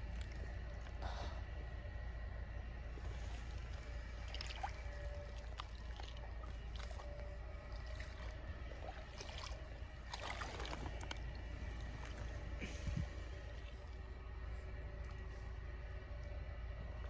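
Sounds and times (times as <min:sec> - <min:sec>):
steady low rumble: 0:00.0 - 0:17.0
creek water trickling: 0:03.0 - 0:17.0
splashing in shallow water: 0:03.9 - 0:12.1.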